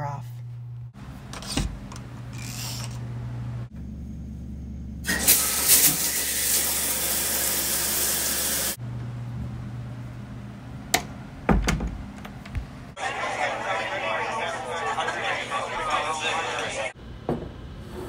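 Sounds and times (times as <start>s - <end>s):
low hum: 0.1s - 5.1s
shower spray running: 5.1s - 8.8s.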